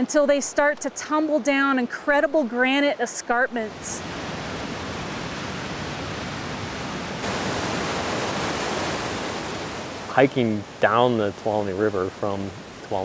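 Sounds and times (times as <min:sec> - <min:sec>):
white water rushing: 0:03.7 - 0:13.0.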